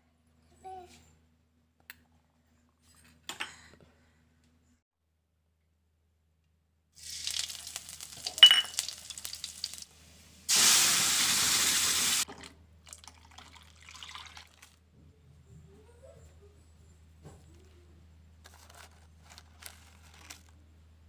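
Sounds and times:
puree pouring into pan: 0:07.0 - 0:09.9, 0:12.3 - 0:14.8
loud sizzling hiss: 0:07.0 - 0:12.2
frying in hot oil: 0:07.0 - 0:12.3.

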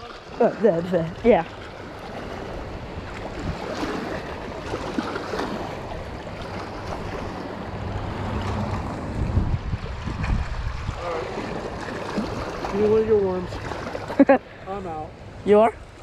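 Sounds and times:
waves lapping against rocks: 0:00.0 - 0:16.0
wind buffeting microphone: 0:00.0 - 0:16.0.

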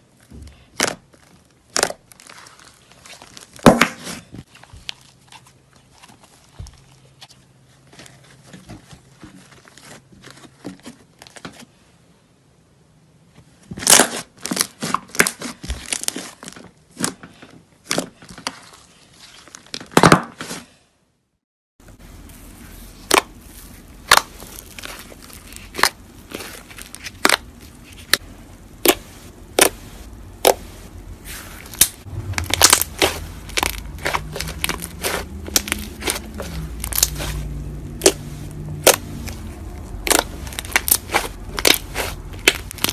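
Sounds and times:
fingers squishing slime: 0:23.0 - 0:42.9.

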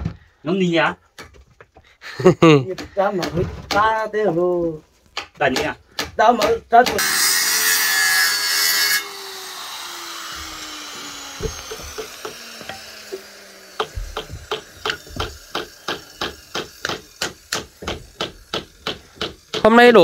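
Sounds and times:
electric cutter whining: 0:07.0 - 0:20.0.

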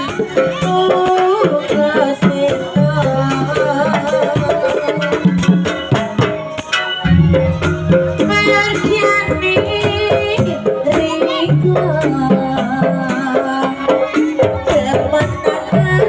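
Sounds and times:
drums and rattling percussion: 0:00.0 - 0:16.0
wavering melody line: 0:07.0 - 0:11.2.

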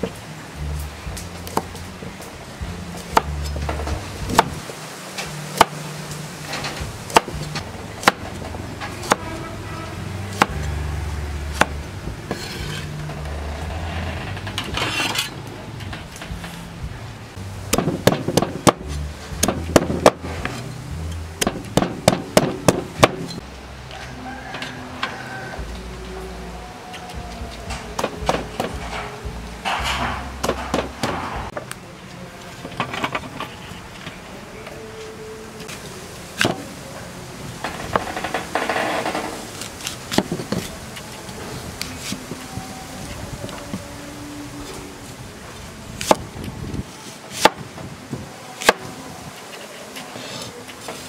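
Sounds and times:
cleaver chopping on wooden board: 0:07.1 - 0:07.4, 0:08.0 - 0:08.2, 0:17.7 - 0:20.2, 0:21.4 - 0:23.3.

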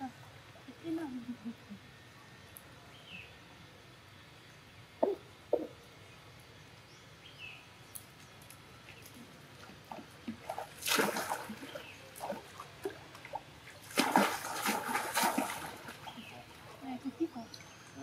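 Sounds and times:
water sloshing and dripping: 0:08.4 - 0:17.8
loud water splashes: 0:10.4 - 0:13.0, 0:13.8 - 0:16.2.

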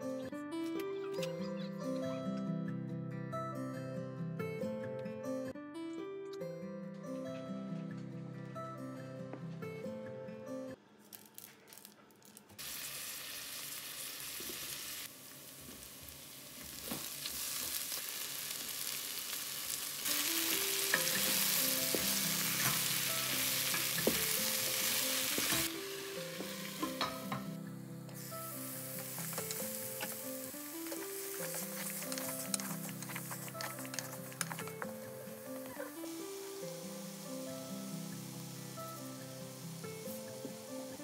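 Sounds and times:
background music: 0:00.0 - 0:11.0, 0:20.0 - 0:41.0
food sizzling in hot oil: 0:12.6 - 0:27.4, 0:28.1 - 0:41.0
wooden spoon stirring: 0:30.8 - 0:35.8.

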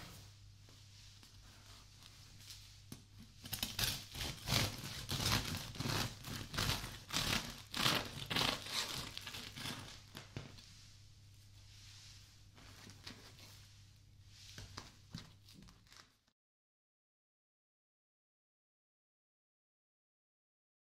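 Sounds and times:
bread knife sawing through crust: 0:03.6 - 0:10.0.

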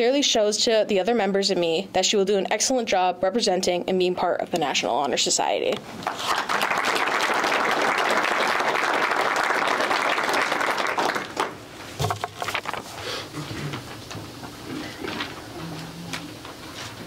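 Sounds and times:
audience applauding: 0:06.0 - 0:11.6.

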